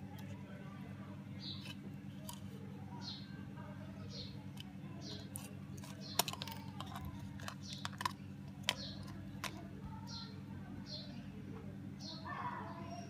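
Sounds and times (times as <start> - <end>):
steady low hum: 0.0 - 13.0
plastic phone parts clicking: 4.5 - 9.6.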